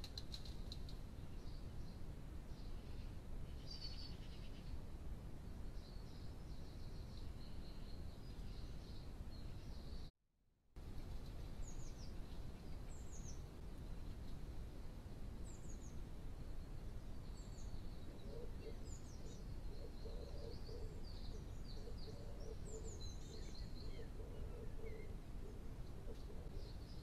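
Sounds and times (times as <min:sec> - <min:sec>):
steady microphone hiss: 0:00.0 - 0:10.1, 0:10.8 - 0:27.0
birds chirping: 0:16.6 - 0:27.0.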